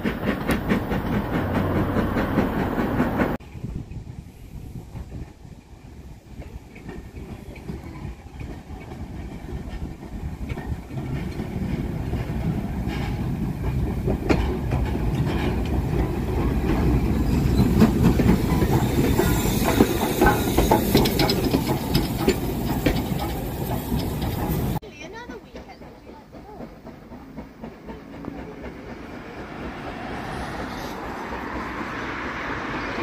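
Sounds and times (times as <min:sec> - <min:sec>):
wheels clicking over rail joints: 0:00.0 - 0:04.2, 0:04.8 - 0:33.0
steam train rumble: 0:00.0 - 0:33.0
steam hiss: 0:17.0 - 0:24.8.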